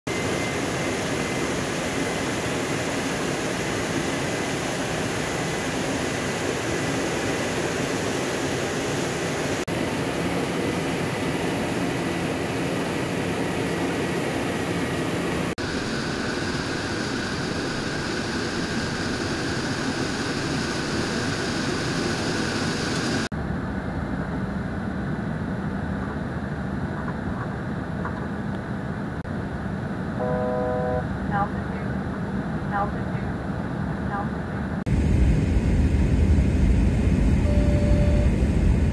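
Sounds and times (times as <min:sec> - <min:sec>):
jet engines and airflow rushing: 0:00.1 - 0:38.9
faint steady whine: 0:34.0 - 0:38.9.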